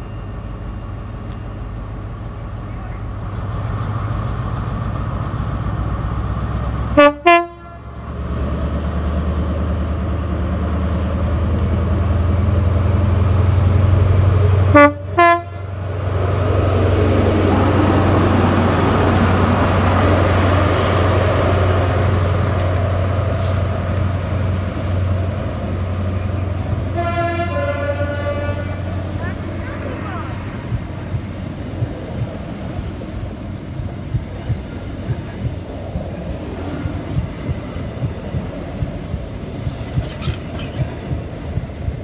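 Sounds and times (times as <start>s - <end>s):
diesel train engine and wheels: 0.0s - 42.0s
two-tone train horn: 6.9s - 8.0s, 14.7s - 15.8s, 26.8s - 29.4s.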